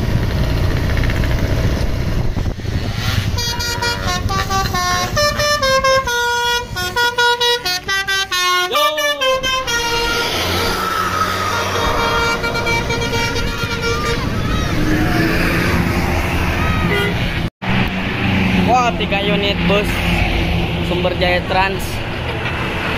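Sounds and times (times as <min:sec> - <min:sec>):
engine noise: 0:00.0 - 0:22.9
bus musical horn tune: 0:03.3 - 0:14.8.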